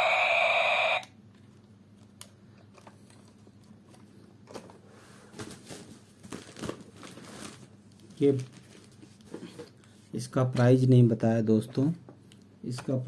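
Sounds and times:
toy electronic sound: 0:00.0 - 0:01.1.

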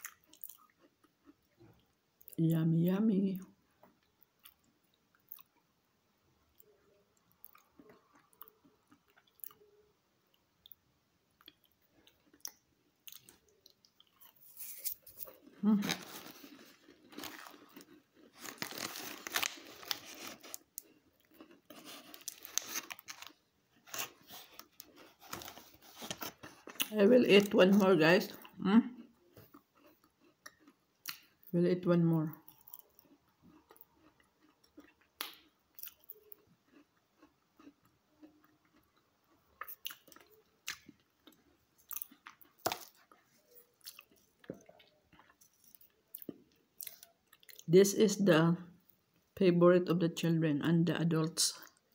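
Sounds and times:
chewing crunchy cookies: 0:00.0 - 0:02.4, 0:03.8 - 0:05.7, 0:06.4 - 0:31.6, 0:32.2 - 0:47.7
plastic tray and wrapper crinkling: 0:14.3 - 0:28.0.

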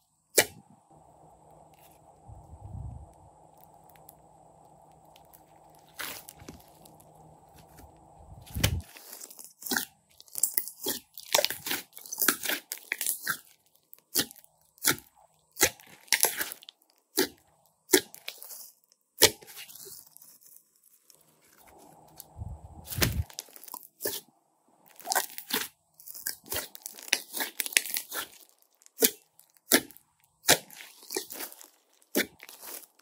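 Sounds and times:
slime popping and crackling: 0:04.9 - 0:07.8, 0:08.5 - 0:20.6, 0:24.9 - 0:33.0
slime squelching: 0:04.9 - 0:33.0.

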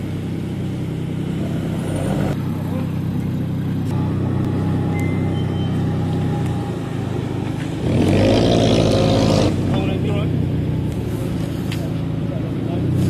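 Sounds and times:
car engines at low revs: 0:00.0 - 0:13.0
car engine revving loudly: 0:07.8 - 0:10.4.

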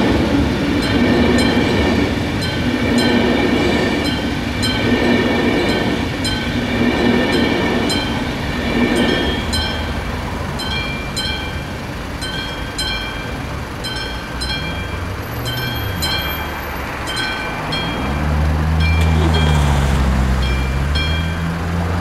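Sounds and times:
train rumbling past: 0:00.0 - 0:22.0
crossing bell two-tone ding: 0:00.8 - 0:03.4, 0:09.0 - 0:21.6.

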